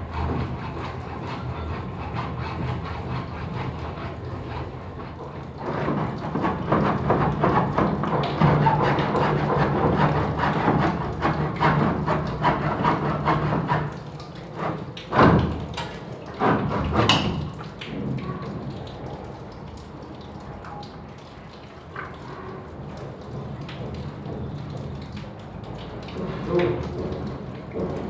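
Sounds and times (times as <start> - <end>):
hands scraping plastic pipe: 0.0 - 15.5.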